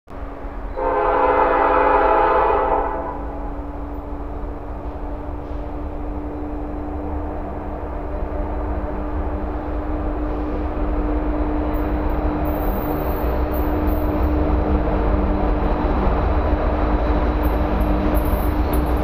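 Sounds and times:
train rumble: 0.1 - 19.0
train horn blast: 0.7 - 3.6.

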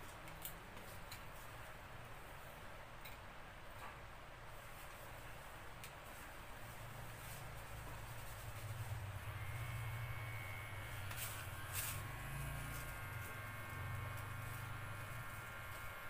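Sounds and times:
electric hair clipper humming: 9.2 - 16.0.

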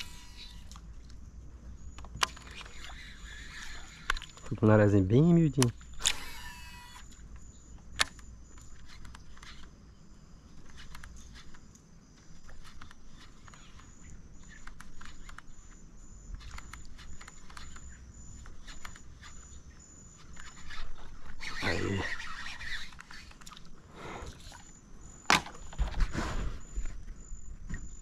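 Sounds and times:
faint high pulsing call: 1.7 - 9.7, 12.4 - 23.4.

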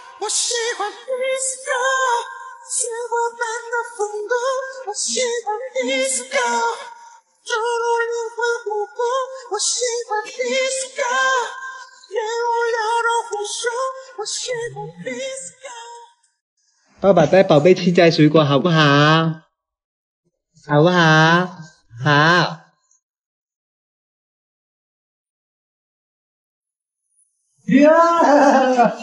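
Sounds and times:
high voice singing unaccompanied: 0.0 - 16.2, 20.7 - 22.6, 27.7 - 29.0.

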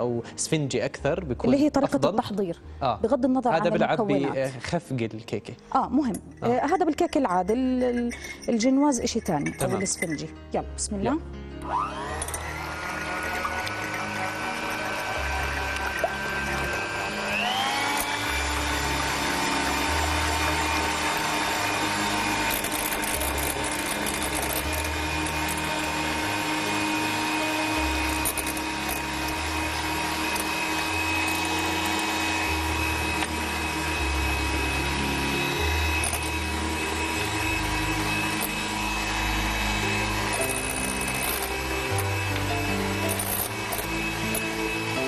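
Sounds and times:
electric hand mixer whining: 11.6 - 45.0.

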